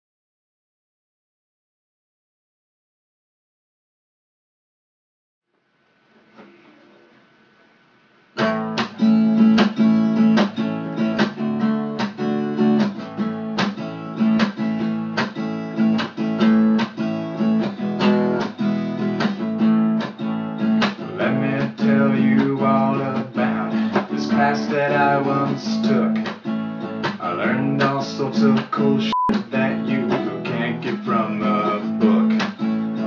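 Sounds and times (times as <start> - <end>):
acoustic guitar strumming: 8.4 - 33.0
man singing: 21.0 - 26.4, 27.0 - 33.0.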